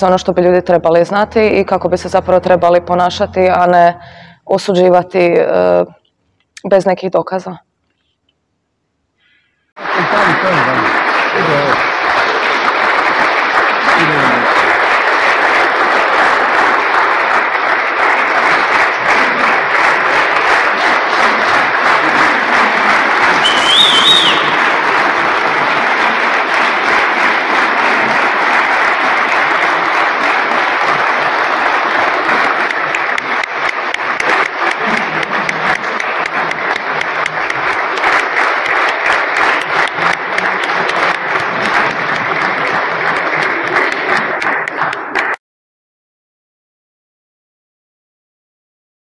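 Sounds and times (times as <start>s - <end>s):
audience applauding: 9.8s - 45.4s.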